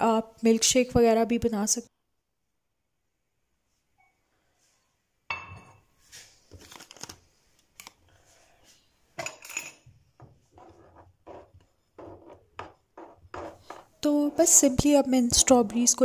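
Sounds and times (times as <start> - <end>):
spoon scraping cutting board: 10.2 - 16.0.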